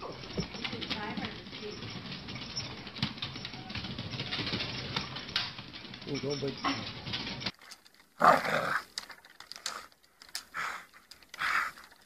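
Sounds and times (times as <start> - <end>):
faint clicks: 8.8 - 12.0.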